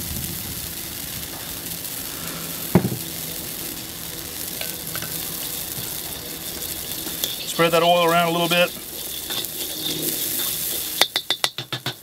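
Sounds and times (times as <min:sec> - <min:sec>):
oil sizzling in a wok: 0:00.0 - 0:12.0
sharp knock: 0:02.8 - 0:03.0.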